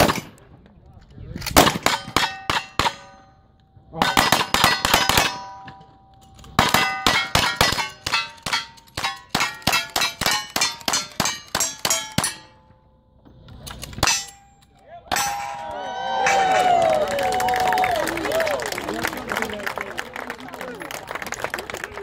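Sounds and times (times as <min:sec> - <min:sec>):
steel plate target ringing: 0:01.8 - 0:13.1, 0:13.7 - 0:15.8.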